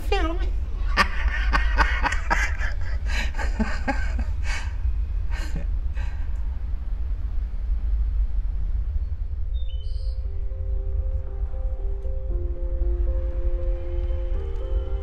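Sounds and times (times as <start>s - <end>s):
woman laughing: 0.8s - 4.4s.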